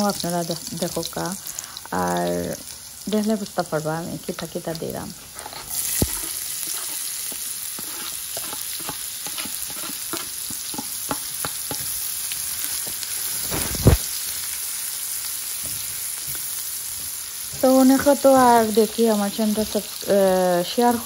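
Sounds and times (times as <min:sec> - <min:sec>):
onions sizzling in oil: 0:00.0 - 0:21.0
spatula scraping a pan: 0:05.3 - 0:14.0.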